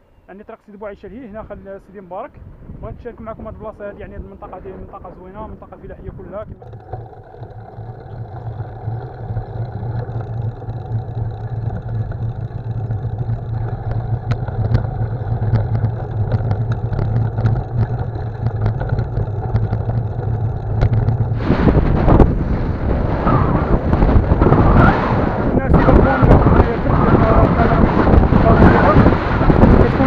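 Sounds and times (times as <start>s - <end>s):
bike tyres rumbling on rough road: 2.4s - 30.0s
rush of air: 20.2s - 30.0s.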